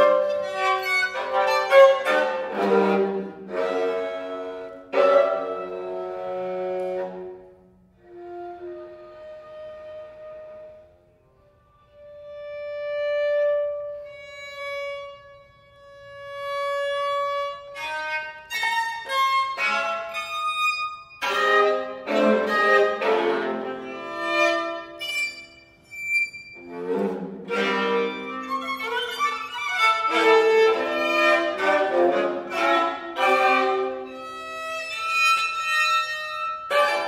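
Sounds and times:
bowed viola d'amore: 0:00.0 - 0:11.0, 0:11.8 - 0:37.0.

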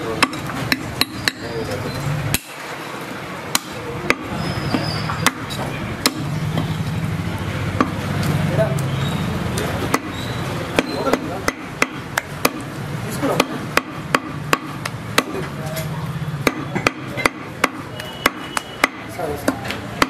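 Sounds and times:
knife chopping meat on wood: 0:03.5 - 0:06.7, 0:09.8 - 0:15.6, 0:16.4 - 0:20.0.

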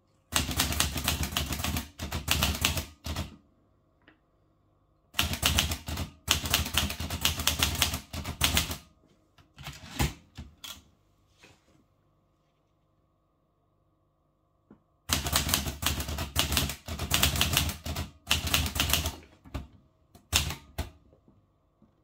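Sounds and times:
typewriter keystrokes: 0:00.3 - 0:03.3, 0:05.2 - 0:08.8, 0:15.1 - 0:19.2, 0:20.2 - 0:20.9.

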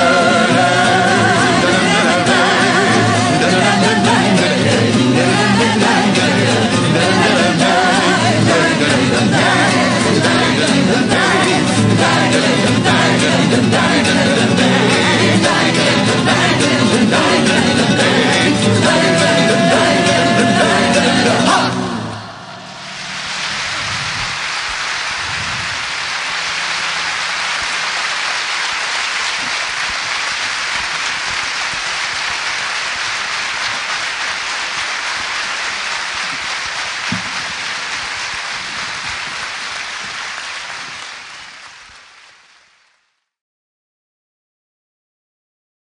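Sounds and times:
steady rain: 0:22.7 - 0:43.0.

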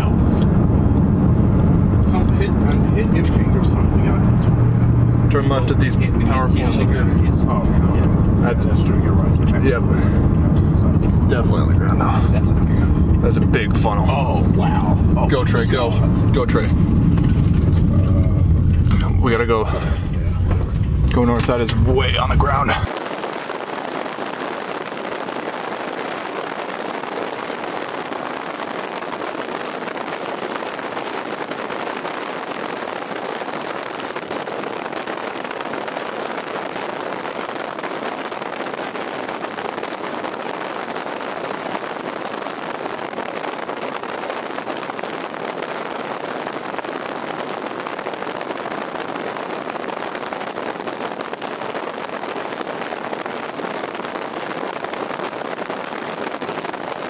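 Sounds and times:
wind rushing: 0:00.0 - 0:50.1
car road noise: 0:00.0 - 0:57.0.

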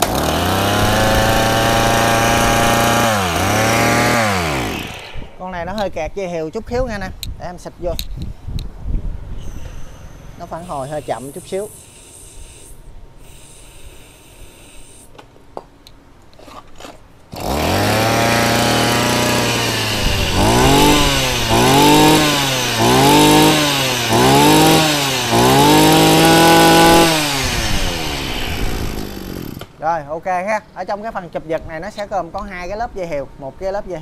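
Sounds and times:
brush cutter engine revving: 0:00.0 - 0:05.9, 0:09.4 - 0:12.8, 0:17.3 - 0:29.8.

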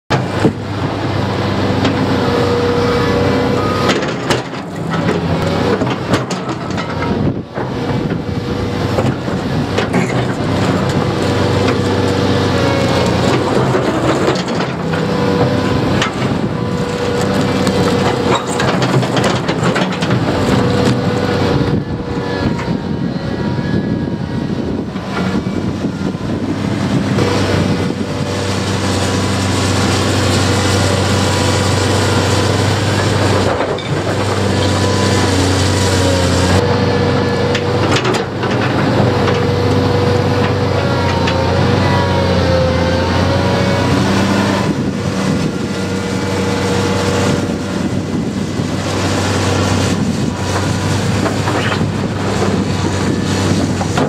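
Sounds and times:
excavator diesel engine running: 0:00.0 - 0:54.0
hydraulic whine: 0:00.1 - 0:54.0
concrete grinding and cracking: 0:08.9 - 0:21.4, 0:26.8 - 0:36.6, 0:46.2 - 0:54.0.

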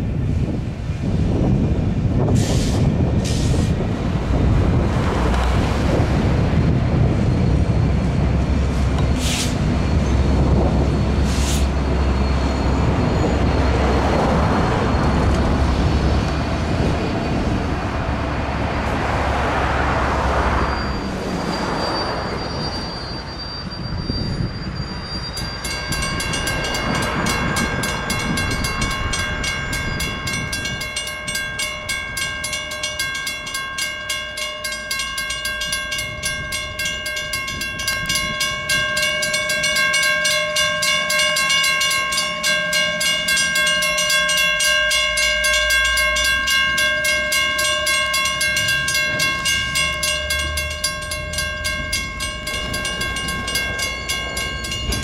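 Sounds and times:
diesel locomotives rumbling: 0:00.0 - 0:55.0
wheels clanking on rail: 0:00.2 - 0:55.0
crossing bell ringing: 0:04.1 - 0:55.0.

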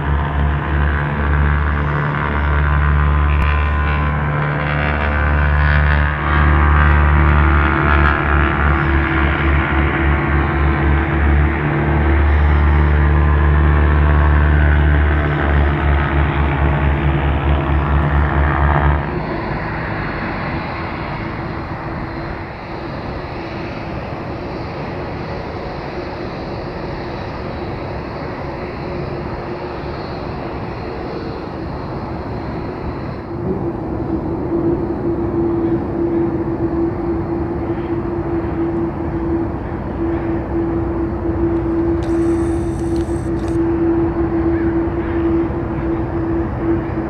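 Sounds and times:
deep pulsing musical tone: 0:00.0 - 0:22.1, 0:33.3 - 0:47.0
jet engine high whine: 0:00.0 - 0:47.0
jet engines humming: 0:00.0 - 0:47.0.

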